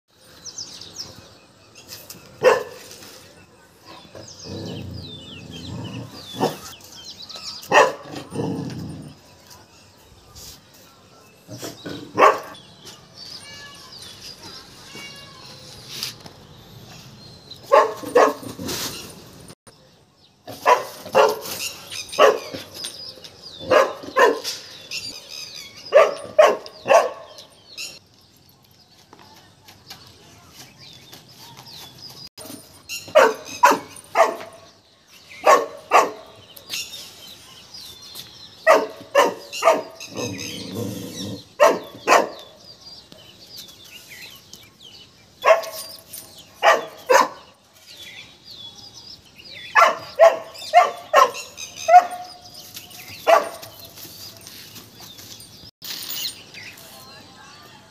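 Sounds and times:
puppy barking: 0:02.4 - 0:02.8, 0:07.7 - 0:08.2, 0:12.2 - 0:12.6, 0:17.7 - 0:18.4, 0:20.5 - 0:21.6, 0:22.2 - 0:22.6, 0:23.6 - 0:24.5, 0:25.9 - 0:27.3, 0:33.1 - 0:34.6, 0:35.4 - 0:36.3, 0:38.7 - 0:40.3, 0:41.6 - 0:42.5, 0:45.4 - 0:45.8, 0:46.6 - 0:47.4, 0:49.8 - 0:52.3, 0:53.2 - 0:53.7.

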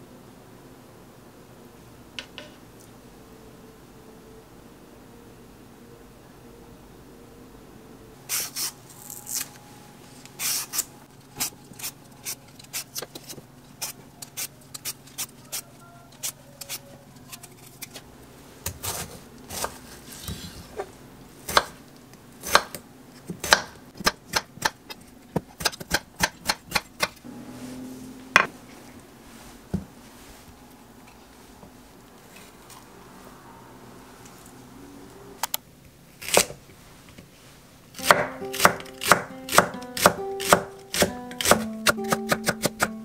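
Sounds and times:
peeler scraping melon rind: 0:10.4 - 0:18.0.

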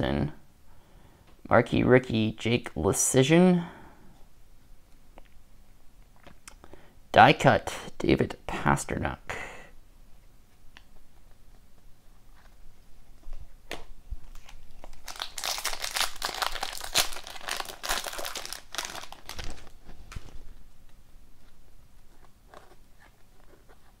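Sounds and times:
foil wrapper crackling and tearing: 0:14.3 - 0:20.3.

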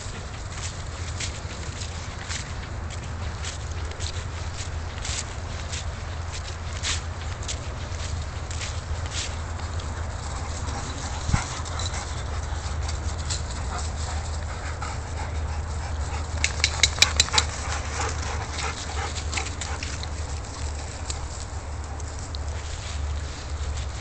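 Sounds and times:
dogs panting: 0:00.0 - 0:24.0
paws rustling in dry leaves: 0:00.0 - 0:24.0
sharp clicks: 0:16.3 - 0:17.6.

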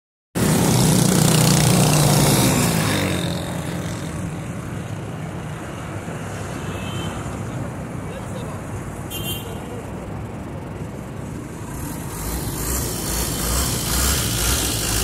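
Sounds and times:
motorcycle passing by: 0:00.4 - 0:04.7, 0:11.6 - 0:15.0
street traffic noise: 0:00.4 - 0:15.0.

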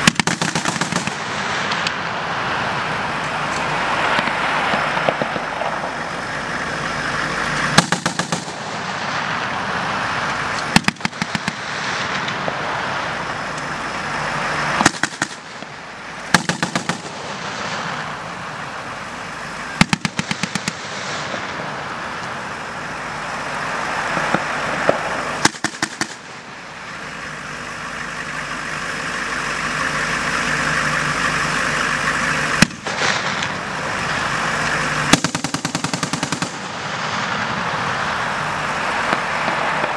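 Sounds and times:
machine gun bursts: 0:00.0 - 0:01.2, 0:07.8 - 0:08.6, 0:16.4 - 0:17.2, 0:35.1 - 0:36.7
vehicle engines droning: 0:00.0 - 0:39.9.

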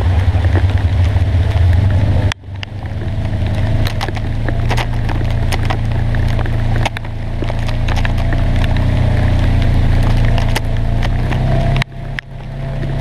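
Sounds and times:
sharp clicks and rattles: 0:00.0 - 0:13.0
vehicle engine running: 0:00.0 - 0:13.0.

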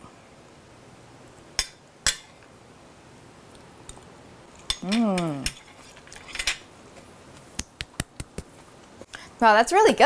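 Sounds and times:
cutlery clink: 0:04.6 - 0:06.7
woman humming while chewing: 0:04.8 - 0:05.6.

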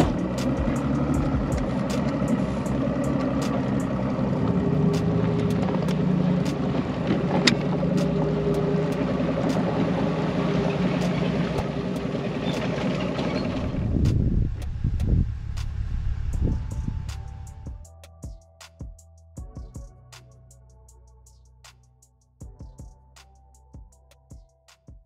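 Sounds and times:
engine idling: 0:00.0 - 0:17.9
low uneven engine rumble: 0:00.0 - 0:17.9.

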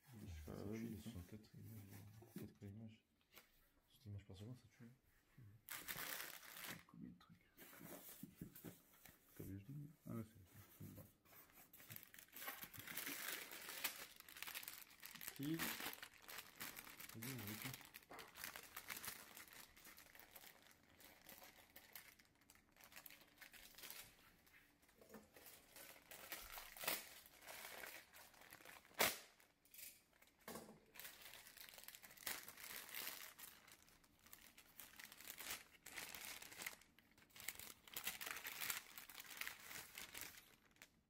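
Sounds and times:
plastic bag crinkling: 0:05.7 - 0:06.9, 0:11.8 - 0:29.5, 0:30.1 - 0:41.0.

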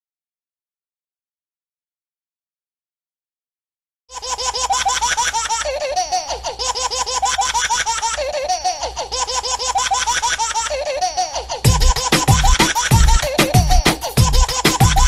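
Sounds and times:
baby giggling: 0:04.1 - 0:15.0.

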